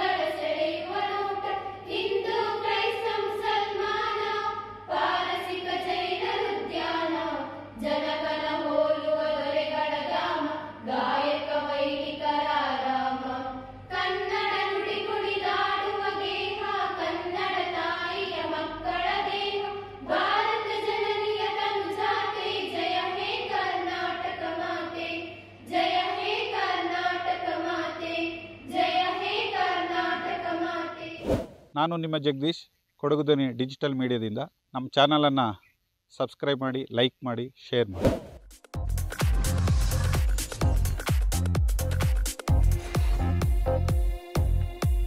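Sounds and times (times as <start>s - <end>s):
girls singing in unison: 0.0s - 31.2s.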